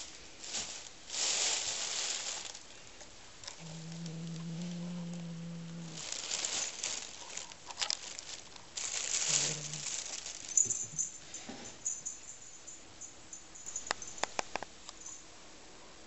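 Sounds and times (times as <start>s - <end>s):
plastic bag crinkling: 0.0s - 2.8s, 5.9s - 11.0s
cat growling: 3.5s - 6.2s, 9.2s - 10.0s.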